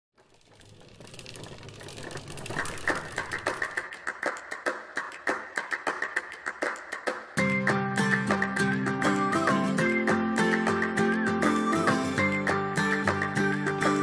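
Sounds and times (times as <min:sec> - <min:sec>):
rapid irregular clicking: 0:00.2 - 0:07.1.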